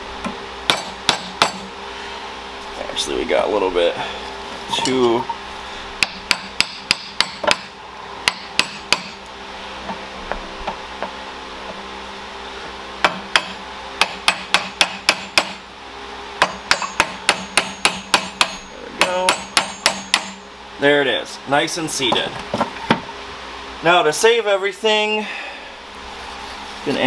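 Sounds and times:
mallet tapping metal: 16.4s - 20.4s.

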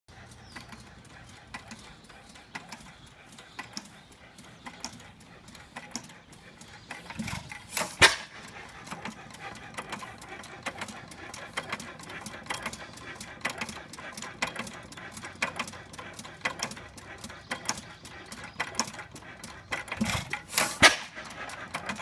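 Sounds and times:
single-cylinder engine ticking: 0.1s - 22.0s
engine pop: 7.0s - 9.0s, 19.7s - 21.4s.

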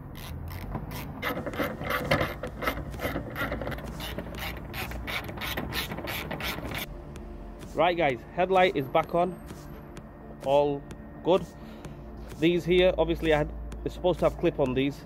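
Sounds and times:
socket ratchet clicking: 0.1s - 6.9s.

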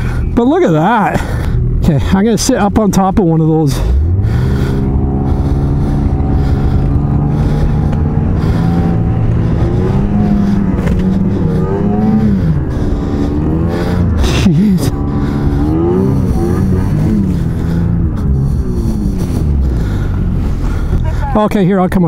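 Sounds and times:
snowmobile engine revving: 0.0s - 21.6s.

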